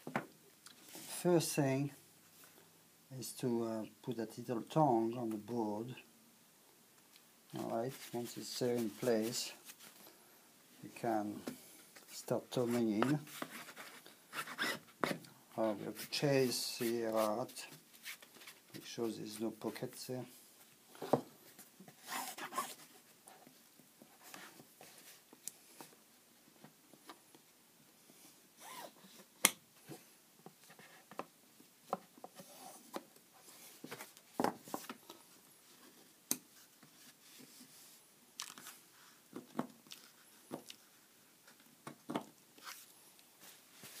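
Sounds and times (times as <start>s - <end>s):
hand rubbing cloth: 7.5s - 10.0s, 15.7s - 19.4s.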